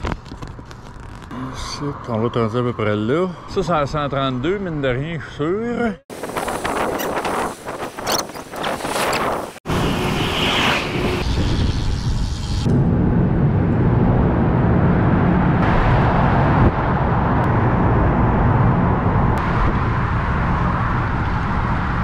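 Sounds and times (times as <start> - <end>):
bicycle road noise: 0.0 - 5.0, 6.1 - 22.0
wind buffeting microphone: 6.1 - 10.1.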